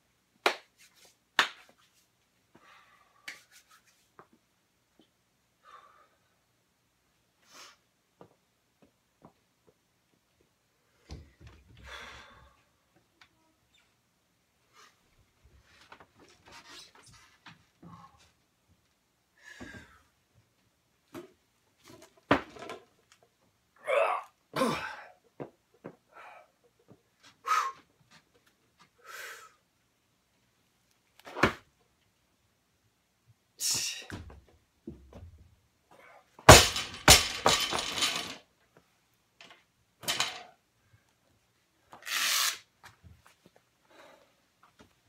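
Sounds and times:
barbell crashing onto floor: 36.5 - 38.4.

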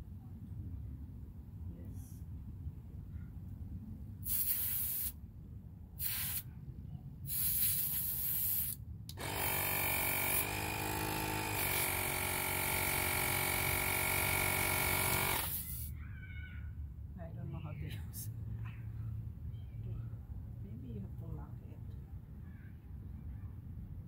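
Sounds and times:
air hissing at tire valve: 4.2 - 5.2, 6.0 - 6.5, 7.3 - 8.8, 15.1 - 15.9
tire inflator compressor running: 8.6 - 15.9.

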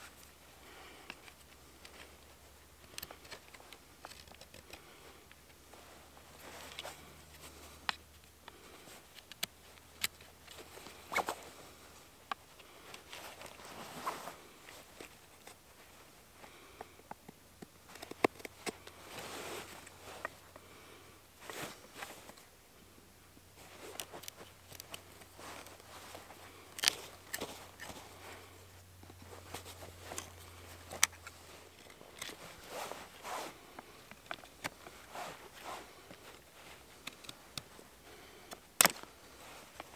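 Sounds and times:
knife shaving wood: 23.8 - 28.6.

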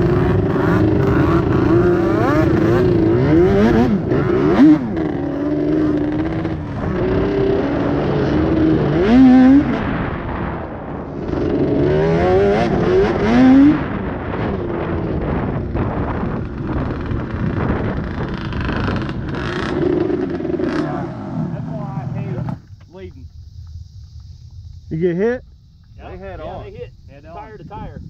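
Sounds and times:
quad engine revving: 0.0 - 10.1, 11.1 - 22.6
wind and tyre noise: 0.0 - 28.0.

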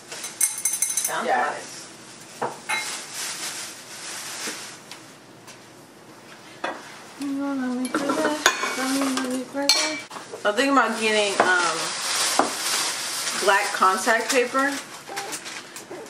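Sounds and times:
glasses and dishes clinking: 0.3 - 1.2, 7.9 - 8.9, 9.7 - 10.1
person humming: 7.2 - 10.0.

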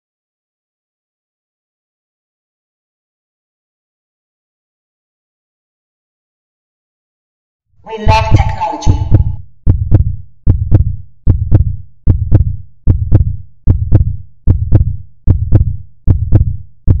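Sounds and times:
heartbeat double thump: 8.1 - 17.0.

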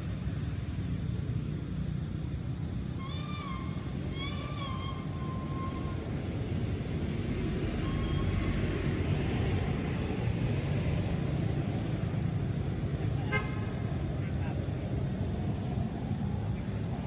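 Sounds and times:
road traffic rumble: 0.0 - 17.0
warbling whistle-like calls: 2.9 - 6.1, 7.8 - 8.8.

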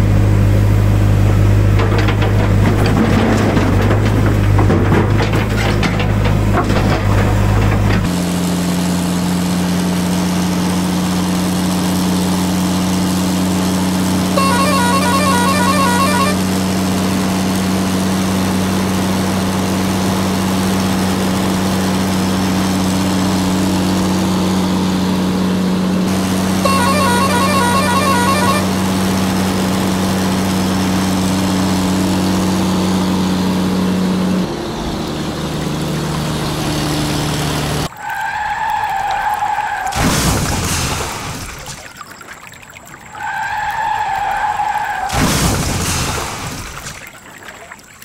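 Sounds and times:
lorry engine drone: 0.0 - 2.2, 8.1 - 37.9
warbling horn honking: 14.2 - 16.9, 26.1 - 29.2
short warbling tone: 14.3 - 16.5, 26.6 - 28.7.

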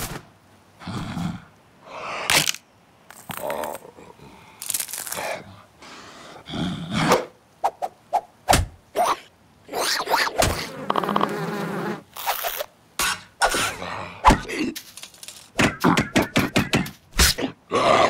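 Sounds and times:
cartoon thunks and knocks: 8.5 - 8.8
buzzing like insect wings: 9.9 - 12.7.

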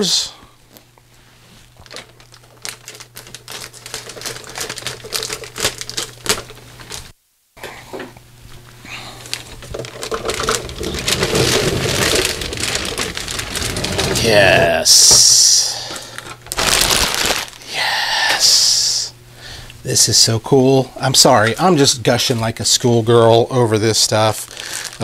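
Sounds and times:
plastic bag crinkling: 1.7 - 7.1, 9.2 - 17.7, 23.9 - 25.0.

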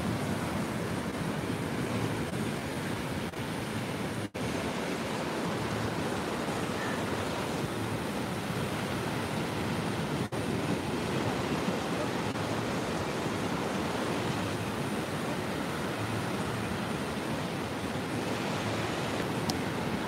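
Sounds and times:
ocean surf breaking on sand: 0.0 - 20.0.

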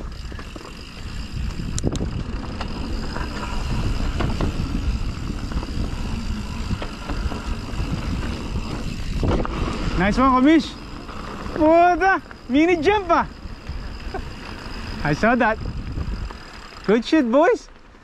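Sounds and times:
rushing of tyres and air: 0.0 - 12.5, 13.1 - 17.2
bike rattling over bumps: 0.0 - 18.0.

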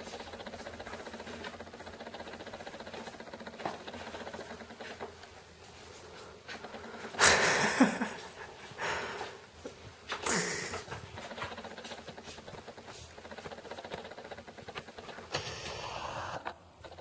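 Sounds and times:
lens motor whirring: 11.2 - 17.0
loud noisy burst: 15.3 - 16.5.

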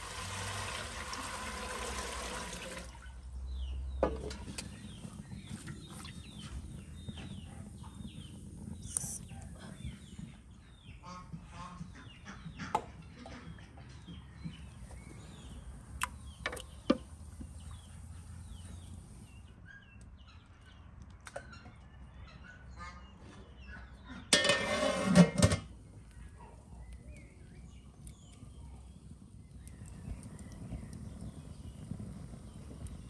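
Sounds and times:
small birds chirping: 3.0 - 24.1, 25.8 - 33.0.

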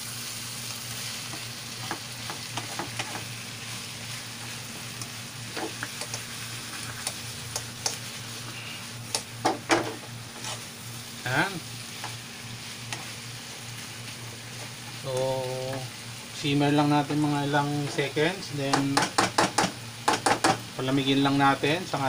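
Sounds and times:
squash sizzling in a pan: 0.0 - 22.0
utensil scraping a pan: 9.8 - 10.7.

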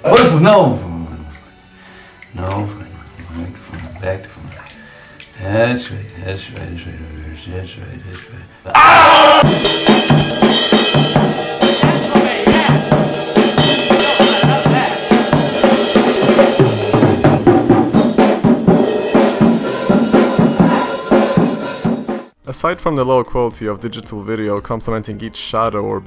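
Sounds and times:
drum kit fast beat: 9.4 - 22.4.

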